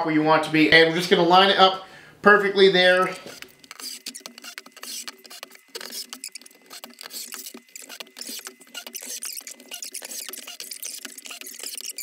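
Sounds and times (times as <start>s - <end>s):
drill driving screws into wood: 3.2s - 12.0s.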